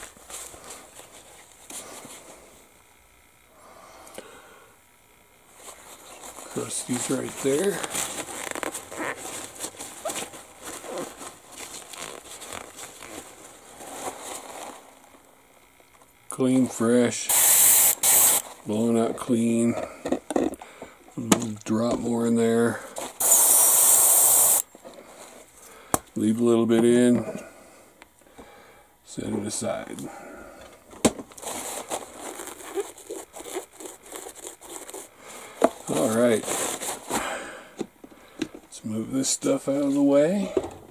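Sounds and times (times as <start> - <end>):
paper towel crinkling and rubbing: 5.5 - 15.0, 31.4 - 35.2, 35.8 - 37.2.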